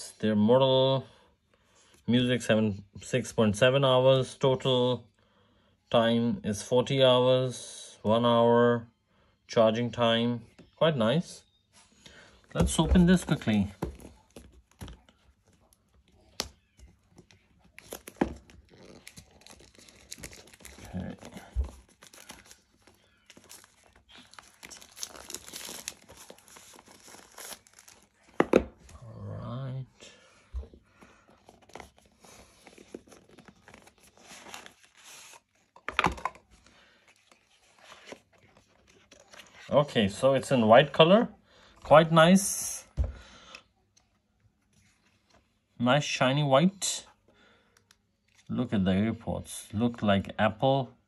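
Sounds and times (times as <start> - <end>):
plastic wrap crinkling: 15.6 - 28.4.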